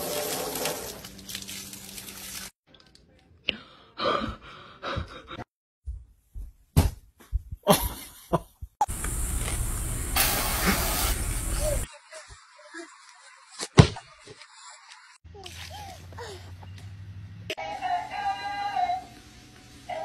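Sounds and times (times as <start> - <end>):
water spraying against window: 0.0 - 2.6, 8.9 - 11.9.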